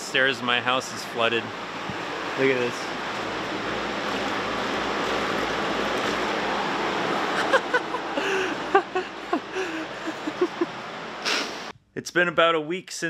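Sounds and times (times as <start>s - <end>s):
steady rushing noise: 0.0s - 11.7s.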